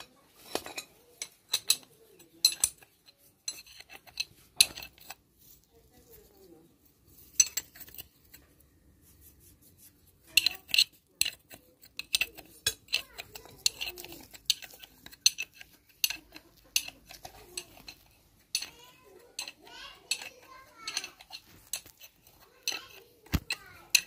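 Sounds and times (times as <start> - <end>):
spanner clinking on metal bolts: 0.0 - 5.2, 10.4 - 24.0.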